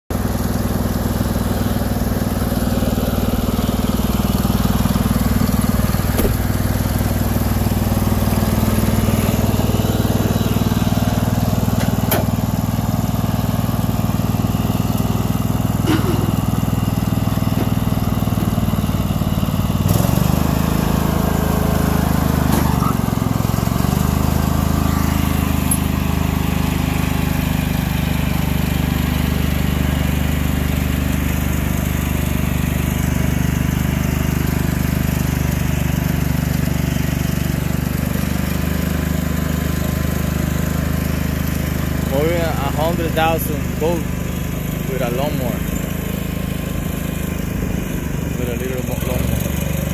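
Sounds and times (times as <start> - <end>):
lawn tractor engine running: 0.1 - 49.9.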